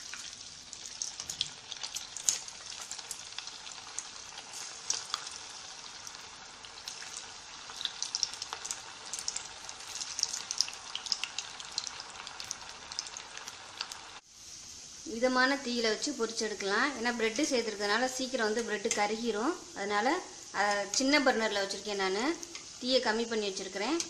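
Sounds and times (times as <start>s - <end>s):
crackles and pops of frying: 0.0s - 24.0s
dough deep-frying in hot oil: 0.0s - 24.0s.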